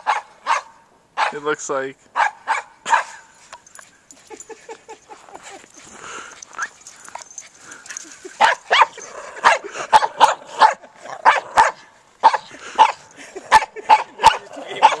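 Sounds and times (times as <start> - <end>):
dog barking: 0.0 - 1.4, 2.2 - 3.2, 8.4 - 15.0.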